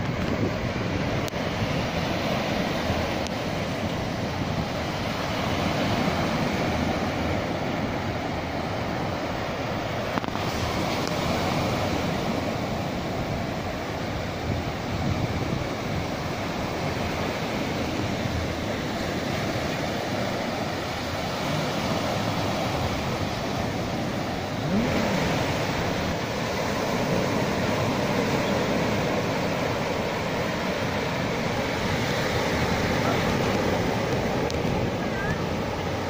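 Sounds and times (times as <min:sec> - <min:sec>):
small waves breaking on sand: 0:00.0 - 0:36.0.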